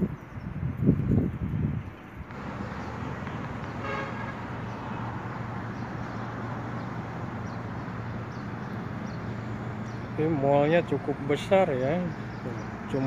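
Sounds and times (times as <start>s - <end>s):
road traffic: 0.0s - 13.0s
vehicle horn toot: 3.7s - 4.6s.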